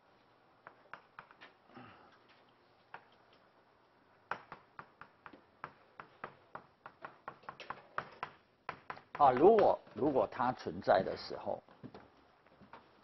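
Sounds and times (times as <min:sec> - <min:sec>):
chalk tapping on blackboard: 0:04.3 - 0:09.9.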